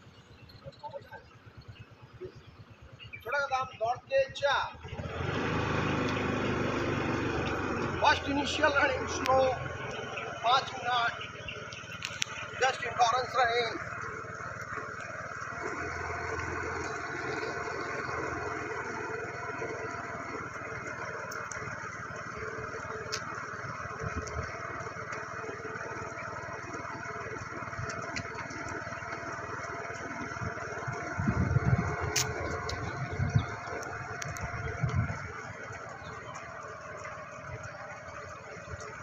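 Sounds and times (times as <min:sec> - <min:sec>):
vehicle engine and road noise: 0:00.0 - 0:39.0
wind bumps on microphone: 0:31.2 - 0:33.5.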